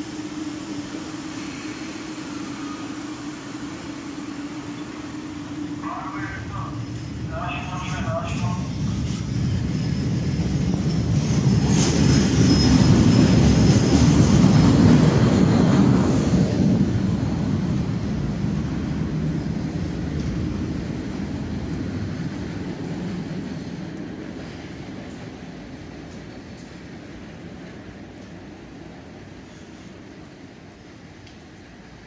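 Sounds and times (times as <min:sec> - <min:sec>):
subway train rumbling past: 0:00.0 - 0:32.0
high wheel squeal: 0:11.6 - 0:13.5.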